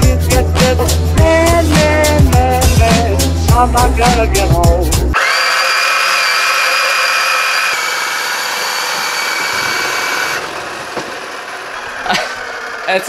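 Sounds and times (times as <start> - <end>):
small electric motor whine: 5.2 - 13.0.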